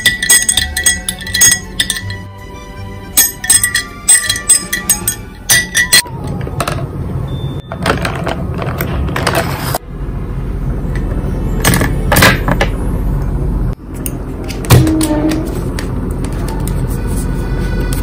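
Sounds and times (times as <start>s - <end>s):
glass straw clinking in glass: 0.0s - 2.3s, 3.2s - 6.1s.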